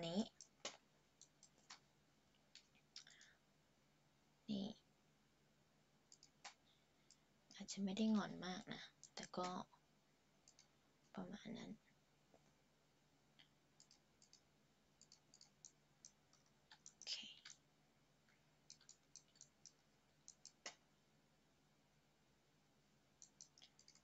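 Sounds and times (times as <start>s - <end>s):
computer mouse clicks: 0.2s - 1.8s, 2.5s - 3.4s, 6.1s - 7.6s, 9.0s - 9.6s, 10.4s - 10.7s, 13.4s - 17.6s, 18.6s - 20.8s, 23.2s - 24.0s.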